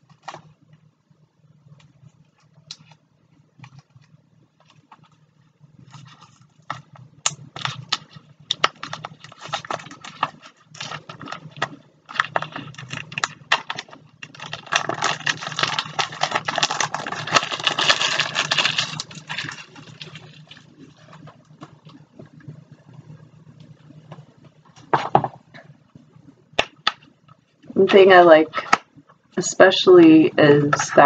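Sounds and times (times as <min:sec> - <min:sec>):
plastic wrap crackling: 0:01.7 - 0:25.6
plastic being crumpled: 0:03.6 - 0:22.9.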